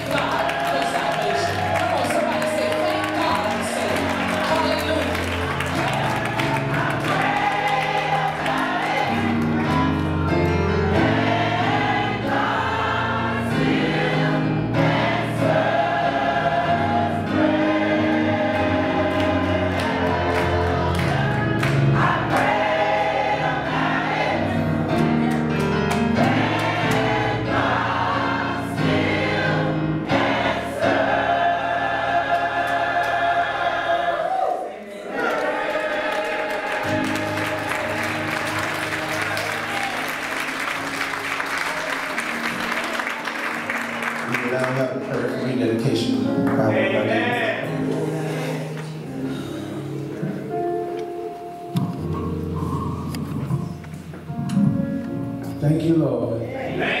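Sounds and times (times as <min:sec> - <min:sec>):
choir singing gospel song: 0:00.0 - 0:54.9, 0:55.8 - 0:57.0
instrumental accompaniment: 0:35.1 - 0:56.0.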